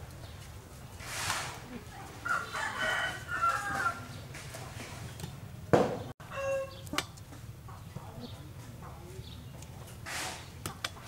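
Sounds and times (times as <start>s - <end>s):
rooster crowing: 2.2s - 4.1s, 6.2s - 6.8s.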